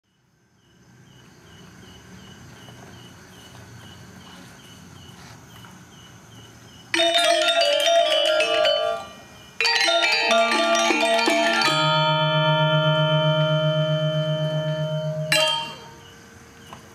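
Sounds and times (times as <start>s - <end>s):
gamelan metallophones playing: 6.9s - 16.3s.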